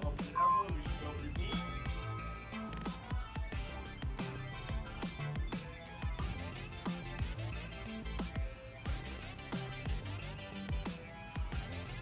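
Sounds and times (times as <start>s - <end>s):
electronic music with bass drum: 0.0s - 12.0s
short beep: 0.3s - 2.7s.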